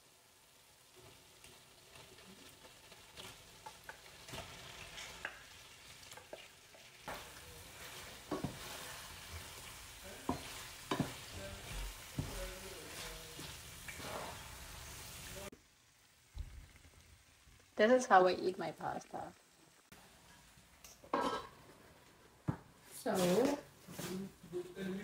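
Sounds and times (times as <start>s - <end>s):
sauce sizzling in a pan: 0.0s - 22.1s
spatula scraping and knocking pan: 6.0s - 14.7s.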